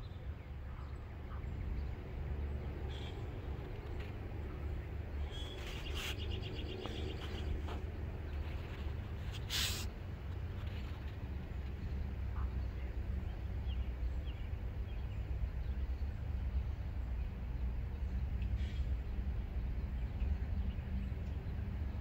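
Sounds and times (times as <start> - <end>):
faint bird chirps: 5.2 - 7.6
brief hiss: 9.3 - 9.9.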